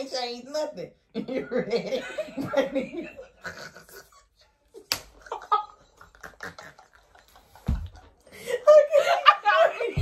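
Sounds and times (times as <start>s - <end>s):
people laughing: 1.2s - 10.0s
slap to the face: 4.8s - 5.3s.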